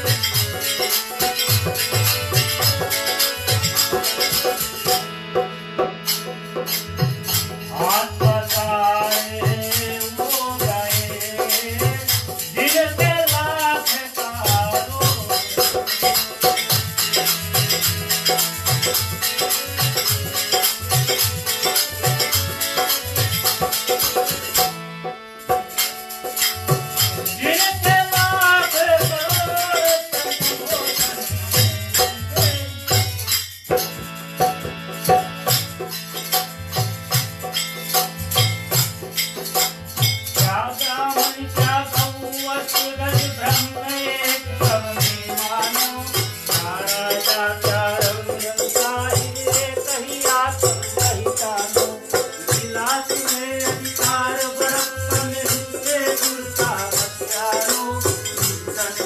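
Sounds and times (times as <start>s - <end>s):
dholak drum: 0.0s - 59.0s
harmonium: 0.0s - 59.0s
jingling percussion: 0.0s - 59.0s
man singing: 7.7s - 18.4s, 27.2s - 33.1s, 40.4s - 59.0s.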